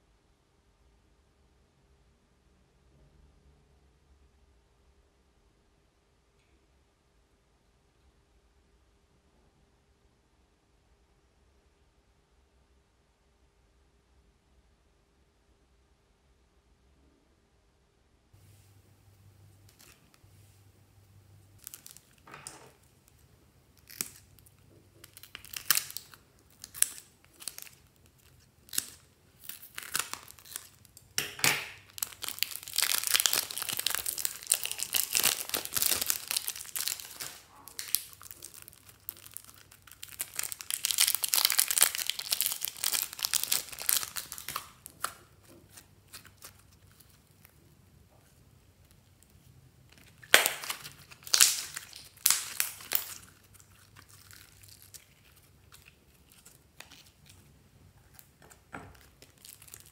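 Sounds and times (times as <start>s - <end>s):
plastic bags crinkling: 21.5s - 47.6s, 49.9s - 59.9s
slime squeezed out of bag: 31.7s - 45.4s, 50.0s - 57.2s.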